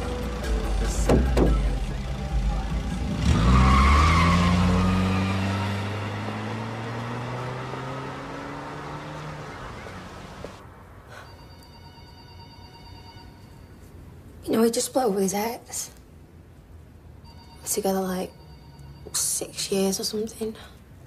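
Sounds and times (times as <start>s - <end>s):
car engine revving: 0.0s - 10.6s
tyre squeal: 3.3s - 5.6s.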